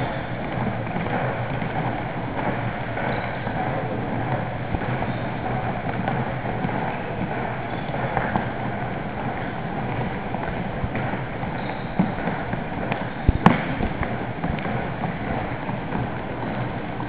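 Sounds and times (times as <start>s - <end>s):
sharp knock: 11.9s - 14.8s.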